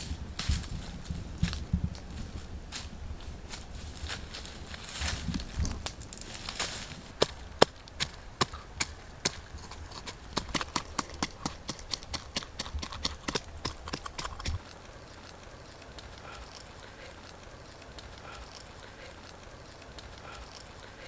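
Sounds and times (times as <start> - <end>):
blade crunching pineapple flesh: 7.2 - 14.7.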